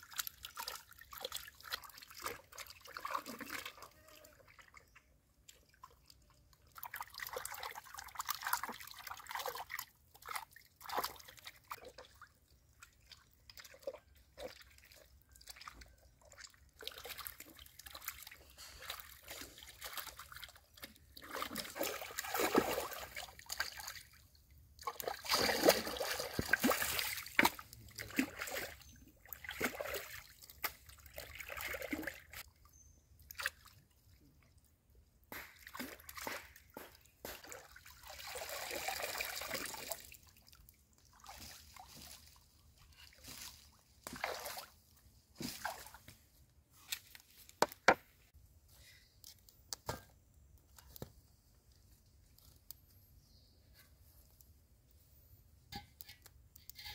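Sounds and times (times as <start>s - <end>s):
bowl splashing through water: 0.0s - 4.9s, 5.8s - 24.2s, 24.8s - 32.4s, 35.4s - 44.8s
water sloshing and trickling: 0.0s - 53.3s.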